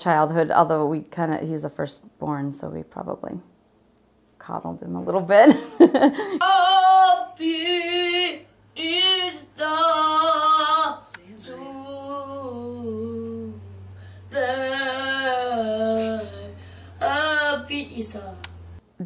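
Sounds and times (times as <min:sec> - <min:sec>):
woman singing long notes: 0:06.4 - 0:18.6.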